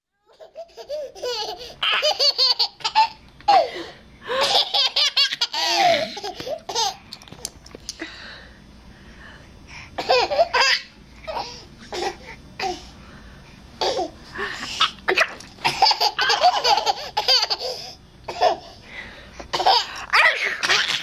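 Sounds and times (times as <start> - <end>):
baby giggling: 0.3 - 3.7, 4.4 - 7.0, 14.8 - 18.6.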